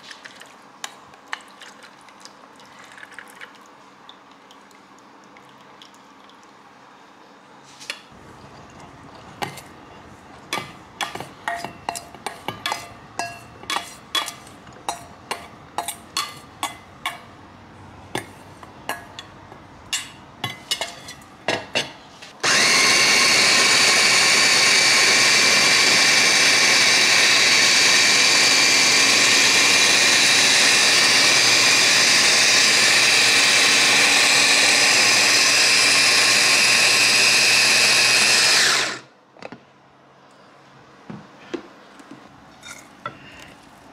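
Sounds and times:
electric food chopper grinding: 22.4s - 39.1s.

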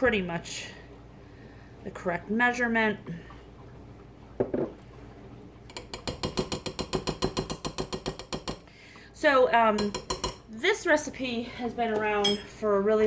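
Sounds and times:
metal cup tapping glass bowl: 5.7s - 8.6s, 9.8s - 10.4s.

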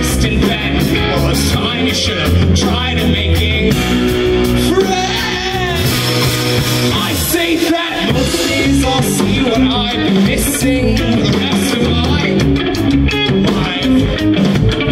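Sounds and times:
man singing: 0.0s - 6.1s, 6.8s - 14.9s
rock band playing live: 0.0s - 14.9s.

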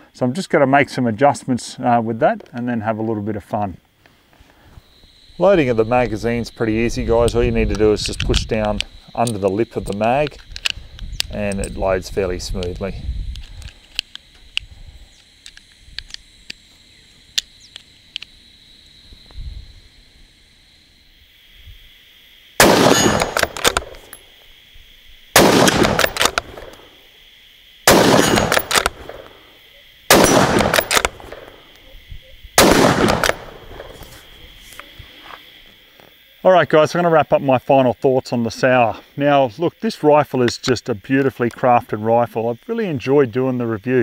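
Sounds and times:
cartridges clicking into magazine: 7.7s - 11.7s, 22.6s - 24.2s, 25.4s - 26.8s, 27.9s - 29.3s, 30.1s - 31.8s, 32.6s - 33.6s
rifle shots with echo: 22.6s - 24.0s, 25.4s - 26.8s, 27.9s - 29.3s, 30.1s - 31.6s, 32.6s - 34.0s.

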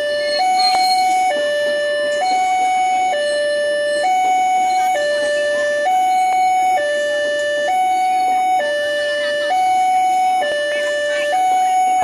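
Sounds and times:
level crossing two-tone alarm: 0.0s - 12.0s.

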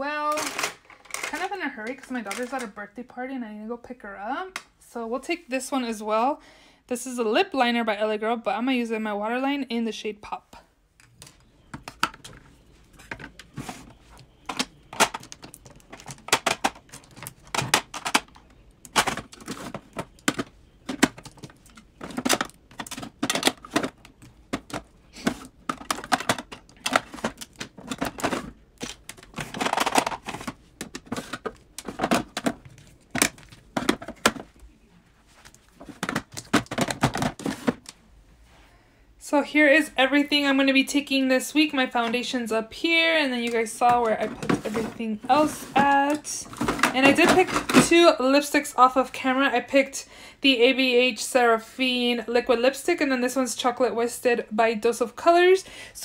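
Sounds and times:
plastic items clacking and tapping: 0.2s - 2.8s, 11.0s - 34.8s, 35.4s - 38.0s, 43.4s - 48.2s.

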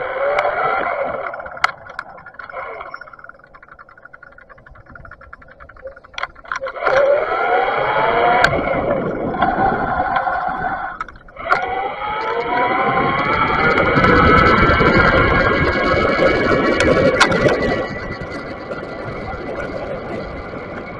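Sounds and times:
bicycle freewheel ticking: 0.0s - 20.9s
electric bike motor whining: 0.0s - 20.9s
wind and road noise: 0.0s - 20.9s.

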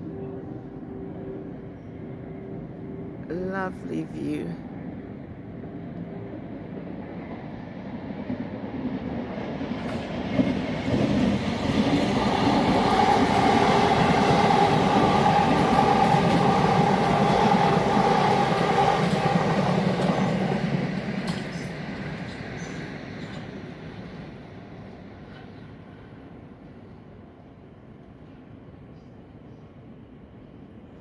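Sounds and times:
electric train passing: 0.0s - 31.0s.

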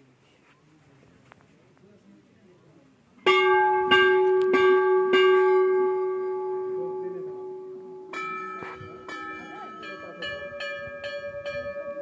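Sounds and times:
temple bell ringing: 3.2s - 12.0s
second bell struck: 3.3s - 12.0s.

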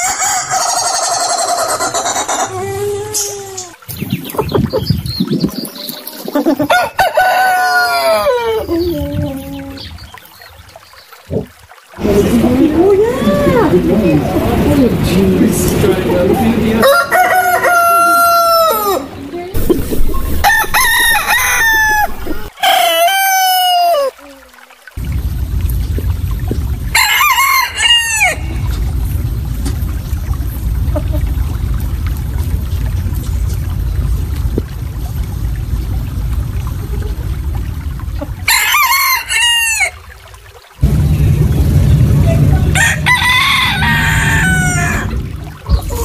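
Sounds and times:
roosters crowing: 0.0s - 2.5s, 6.7s - 8.7s, 12.9s - 24.2s, 27.0s - 28.6s, 38.5s - 40.0s, 42.6s - 46.0s
low steady rumbling: 11.3s - 22.5s, 25.0s - 38.5s, 40.8s - 46.0s
steady background rumble: 12.0s - 16.8s, 40.8s - 46.0s.

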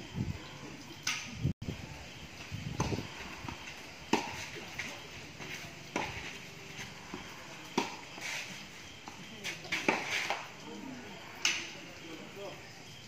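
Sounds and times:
racket striking tennis ball: 2.8s - 4.7s, 7.1s - 8.4s, 9.0s - 10.4s
tennis ball bouncing: 2.8s - 4.8s, 5.4s - 8.3s, 9.0s - 10.4s.

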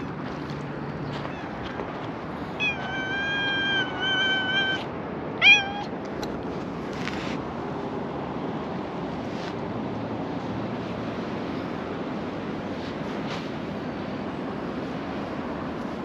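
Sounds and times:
cat meowing: 1.2s - 1.8s, 2.4s - 6.0s.

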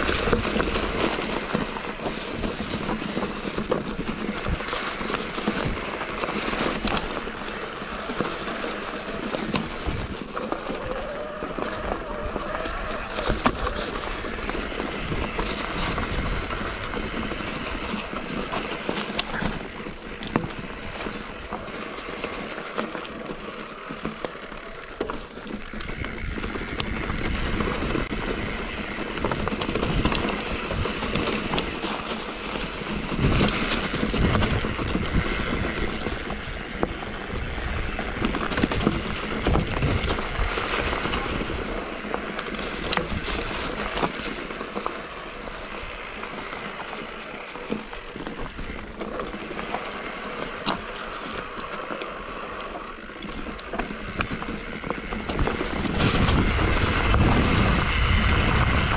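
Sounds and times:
bike rattling and knocking: 0.0s - 58.9s
tyres rushing on dirt and stones: 0.0s - 58.9s
wind on microphone: 33.0s - 44.3s, 53.3s - 58.9s.

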